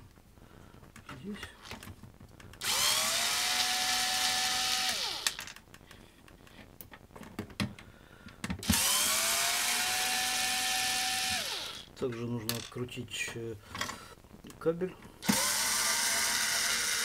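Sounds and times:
cordless drill whining: 2.6 - 5.5, 8.6 - 11.9, 15.2 - 17.0.

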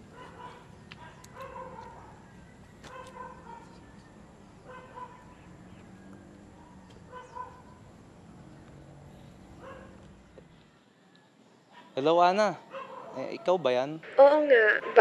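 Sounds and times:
dog barking: 0.1 - 2.2, 2.9 - 3.8, 4.6 - 5.5, 6.5 - 7.8, 9.6 - 10.0, 11.7 - 12.0, 12.7 - 13.6.

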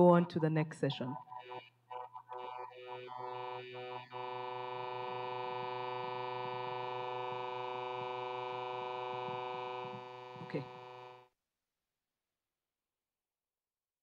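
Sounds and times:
steady electronic buzz: 0.9 - 11.3.

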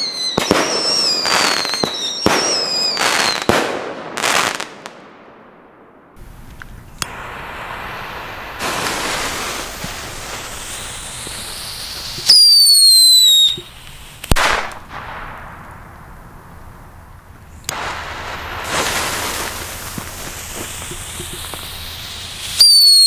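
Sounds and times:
firecracker whistle: 0.0 - 3.6, 6.9 - 15.0, 17.5 - 23.0
firecracker hiss: 0.0 - 4.8, 6.2 - 23.0
firecracker bang: 0.0 - 23.0.

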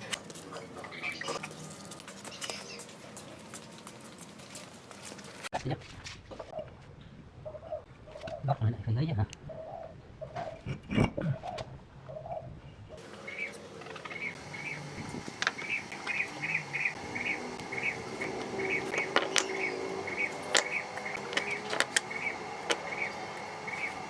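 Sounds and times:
bricks clacking on concrete: 19.0 - 19.6, 20.5 - 22.1.

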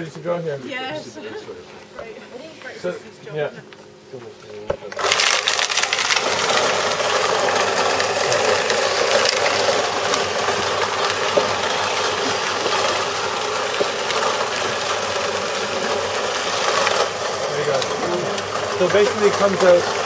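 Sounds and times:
food waste disposer grinding: 4.6 - 20.0.

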